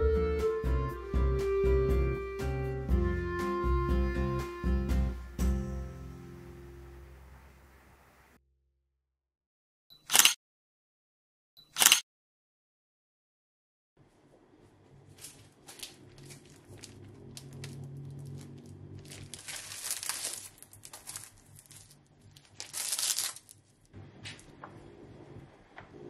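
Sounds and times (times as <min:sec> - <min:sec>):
plastic packaging crinkling: 0:15.0 - 0:24.5.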